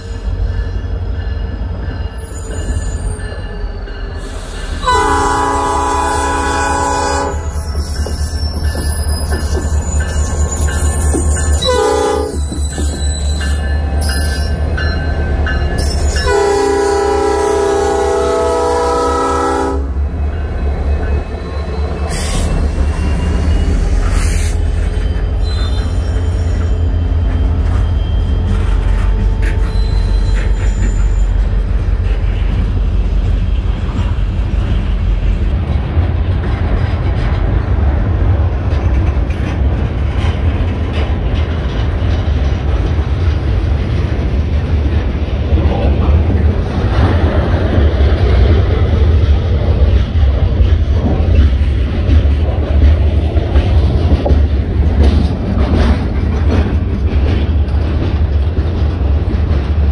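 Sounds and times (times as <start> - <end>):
train wheel squeals: 0.0 - 5.1, 6.0 - 18.2, 20.1 - 35.4
freight train rumbling past: 0.0 - 59.9
locomotive horn: 4.8 - 7.6, 11.6 - 12.4, 16.2 - 20.0.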